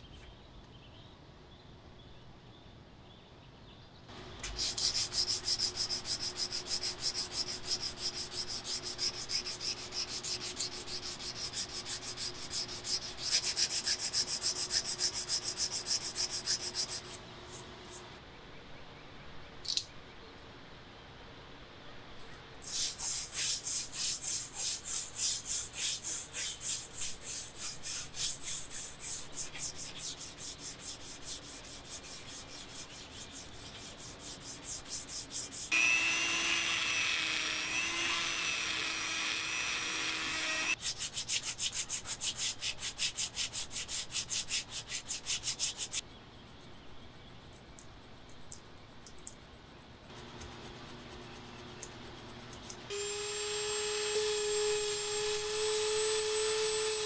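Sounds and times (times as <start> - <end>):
sandpaper rubbing on metal blade: 4.5 - 18.1, 22.6 - 36.8, 37.7 - 46.0.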